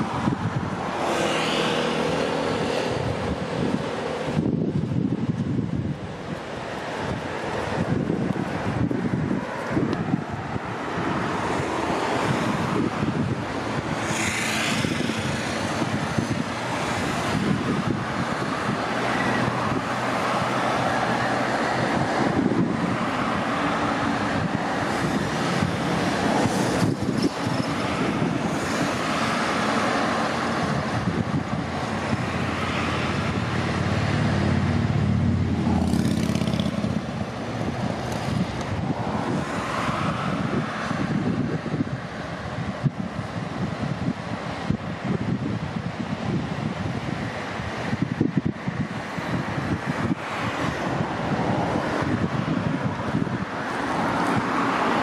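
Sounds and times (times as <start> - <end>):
cars passing on highway: 0.0 - 55.0
deep engine rumble: 33.2 - 38.9.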